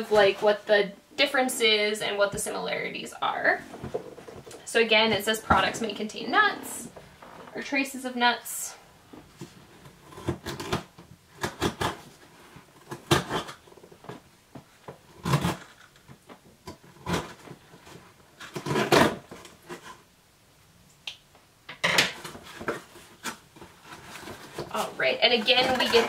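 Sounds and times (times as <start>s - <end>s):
cardboard box being unpacked: 15.2s - 20.0s, 22.2s - 26.0s.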